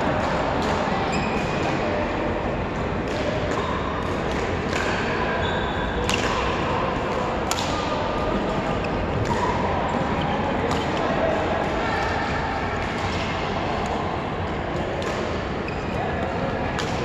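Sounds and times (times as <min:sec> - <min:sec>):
court shoes squeaking: 0:00.7 - 0:02.0, 0:03.1 - 0:11.2, 0:14.8 - 0:17.0
racket hitting shuttlecock: 0:03.0 - 0:05.2, 0:06.0 - 0:08.3.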